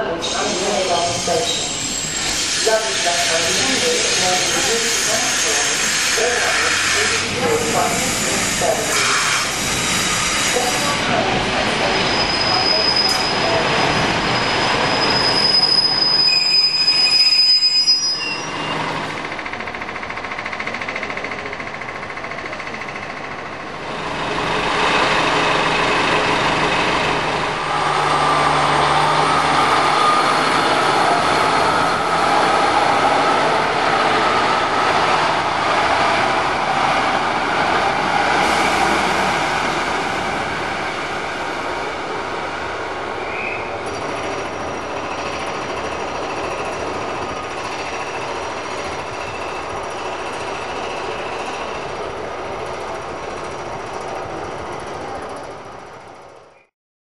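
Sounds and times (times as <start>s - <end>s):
diesel train passing: 0.0s - 56.6s
train wheel squeal: 0.2s - 11.0s, 11.6s - 23.0s, 28.1s - 31.6s, 43.2s - 51.9s.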